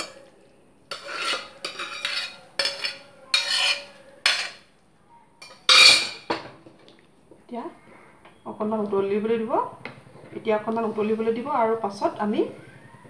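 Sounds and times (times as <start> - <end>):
metal ladle scraping metal pot: 0.0 - 0.2, 0.9 - 4.6, 5.4 - 6.3.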